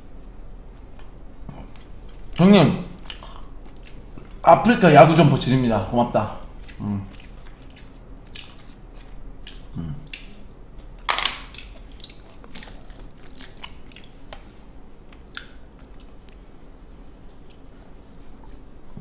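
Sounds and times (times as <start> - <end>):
person chewing food: 0.9 - 2.4, 3.0 - 4.4, 6.4 - 16.4.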